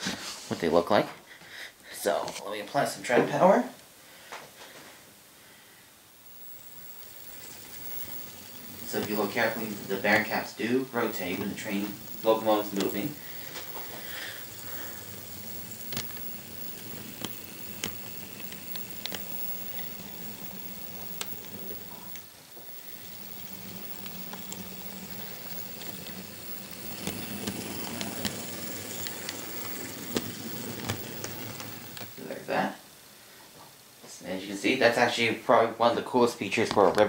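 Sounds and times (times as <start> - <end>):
model train motor hum: 6.2 - 32.6
rattly wheel and rail noise: 6.3 - 32.5.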